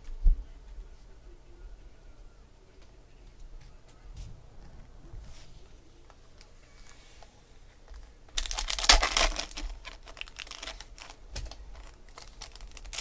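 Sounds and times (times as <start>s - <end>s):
foil wrapper crinkling and tearing: 8.3s - 13.0s.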